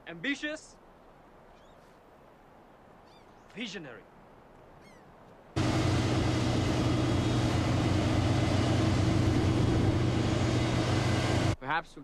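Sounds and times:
heavy engine drone: 5.6 - 11.6
wide rushing hiss: 5.6 - 11.6.

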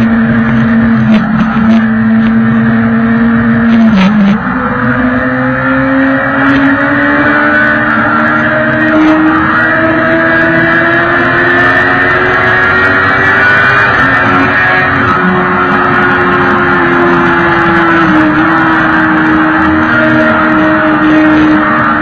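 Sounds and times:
motorcycle engine cruising: 0.0 - 22.0.

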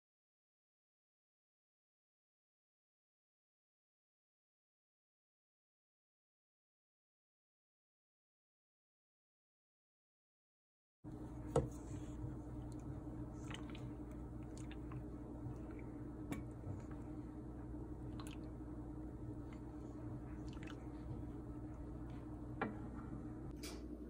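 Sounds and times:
wooden spatula stirring in pot: 11.1 - 23.4
steady low hum: 11.1 - 24.0.

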